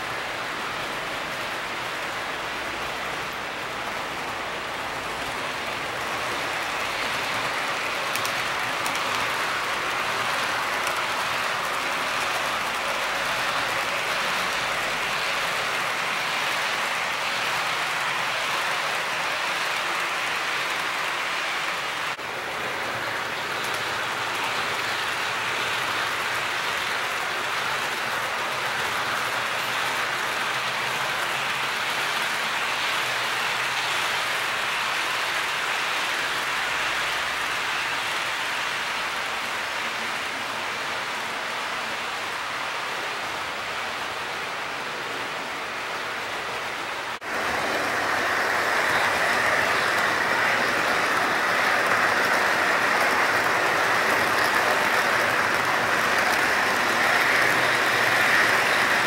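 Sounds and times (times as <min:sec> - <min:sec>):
model train wheels hissing: 0:47.2 - 0:59.0.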